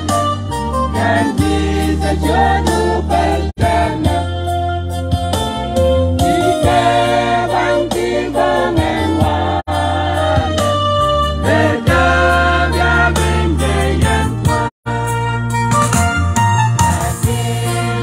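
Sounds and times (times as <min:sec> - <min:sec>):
electronic keyboard bass notes: 0:00.0 - 0:18.0
choir singing a hymn: 0:00.9 - 0:04.4, 0:06.2 - 0:14.7, 0:17.0 - 0:18.0.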